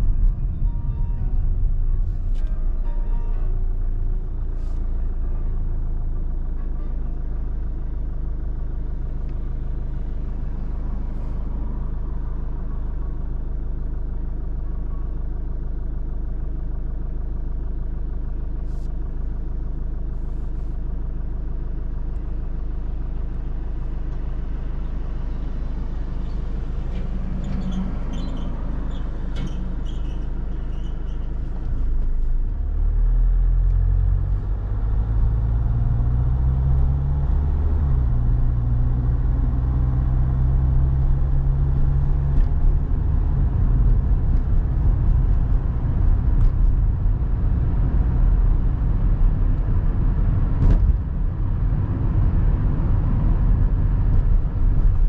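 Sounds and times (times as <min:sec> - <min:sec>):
car engine and road rumble: 0:00.0 - 0:55.0
traffic noise: 0:00.0 - 0:55.0.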